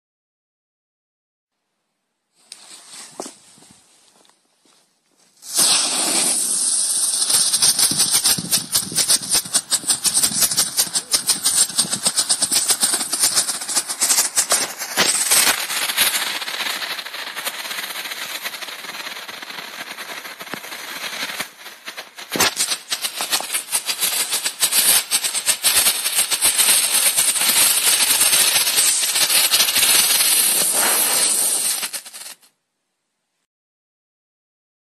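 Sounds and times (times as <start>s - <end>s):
firework hissing and crackling: 5.3s - 32.5s.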